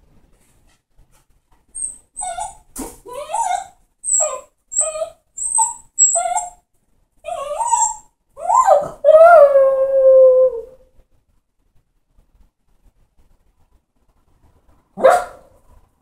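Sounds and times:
dog whining and howling: 1.8 - 6.6, 7.2 - 10.8.

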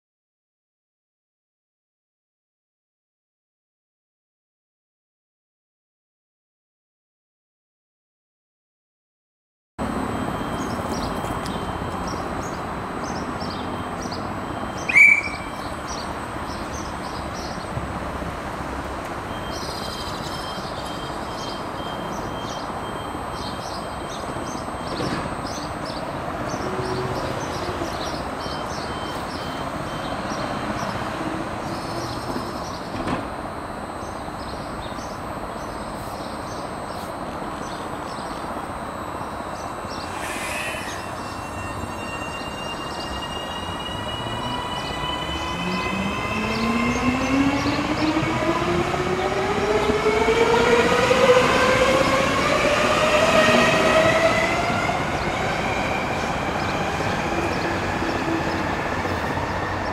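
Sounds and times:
electric train humming: 9.8 - 59.9
birds chirping: 10.4 - 17.7, 39.2 - 59.9.

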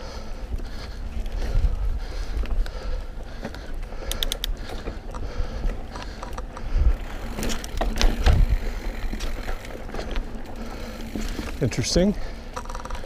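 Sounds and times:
bike clicking and rattling: 0.0 - 13.0
bike tyres rumbling on dirt: 0.0 - 13.0
bike knocking over bumps: 7.2 - 11.6.

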